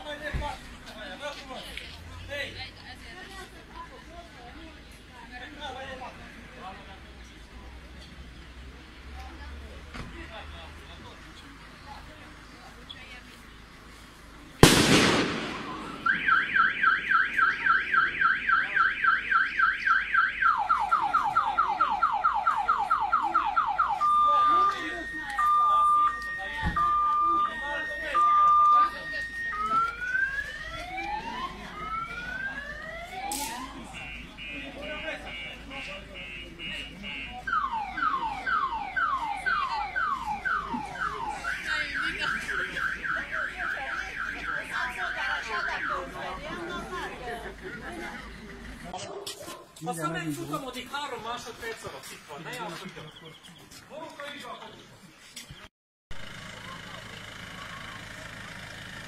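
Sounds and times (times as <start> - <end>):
loud bang echo: 14.6 - 17.6
car alarm siren: 15.5 - 46.4.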